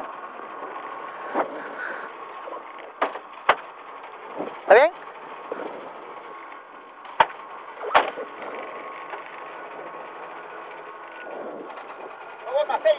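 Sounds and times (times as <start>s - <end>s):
car engine running from inside cabin: 0.0s - 12.9s
sharp knocks: 3.0s - 3.6s, 7.1s - 8.2s.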